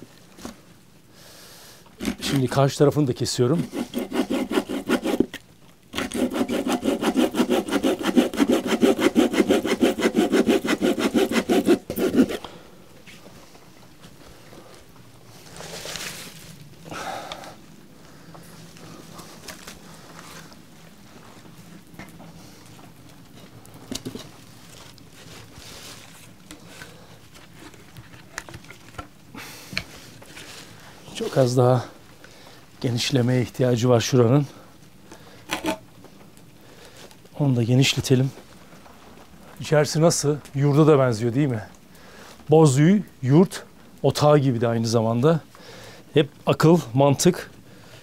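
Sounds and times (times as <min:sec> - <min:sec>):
hand saw cutting wood: 0:02.0 - 0:02.4, 0:03.5 - 0:12.5
hatchet scraping wood: 0:02.0 - 0:02.4, 0:03.6 - 0:12.5, 0:35.5 - 0:35.8
crackling campfire: 0:12.4 - 0:32.9, 0:38.4 - 0:44.3.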